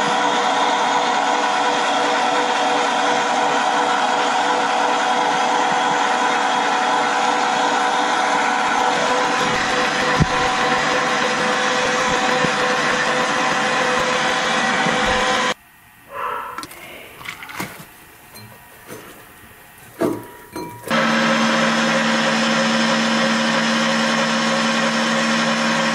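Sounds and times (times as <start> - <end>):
meat grinder motor whining: 0.0 - 15.6, 20.9 - 25.9.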